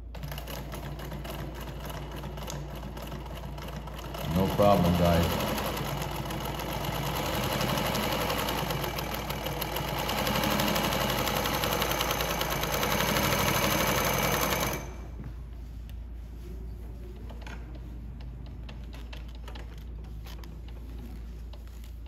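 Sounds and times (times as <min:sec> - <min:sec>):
industrial sewing machine running: 0:00.0 - 0:15.0.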